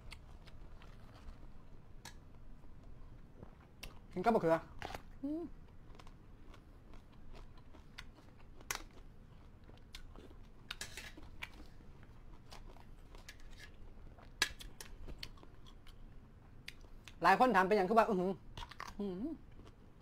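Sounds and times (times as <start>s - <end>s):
chewing crunches: 4.7s - 16.0s.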